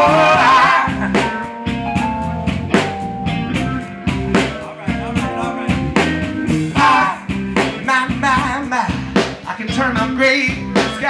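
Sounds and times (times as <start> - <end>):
horn notes: 0.0 - 8.1
keyboard notes: 0.0 - 8.8
drum kit beat: 0.0 - 11.0
guitar: 0.0 - 11.0.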